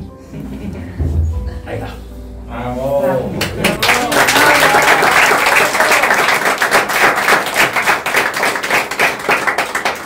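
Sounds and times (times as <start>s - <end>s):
guests applauding: 3.4s - 10.0s.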